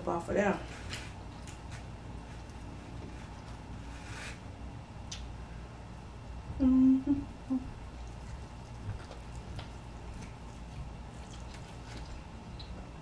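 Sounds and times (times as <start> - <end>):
woman humming mmm: 6.6 - 7.8
wet chewing mouth sounds: 7.8 - 12.9.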